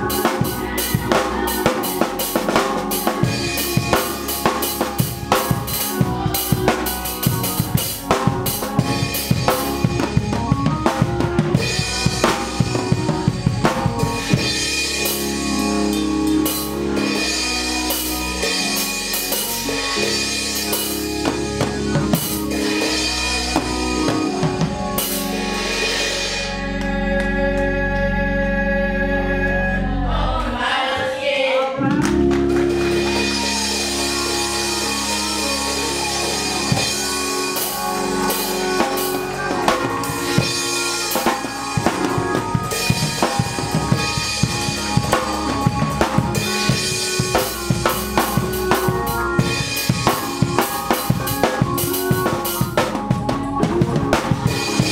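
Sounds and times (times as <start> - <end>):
drum and cymbal hits: 0.0 - 26.7, 32.1 - 54.9
music with low bass line: 0.0 - 30.3, 31.8 - 54.9.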